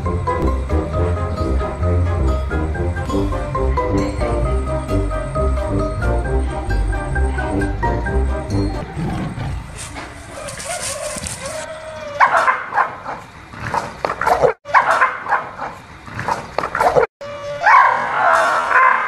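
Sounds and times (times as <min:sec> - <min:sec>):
music: 0:00.0 - 0:08.8
dog barking: 0:10.3 - 0:11.6, 0:12.2 - 0:13.3, 0:14.2 - 0:15.8, 0:16.8 - 0:19.0.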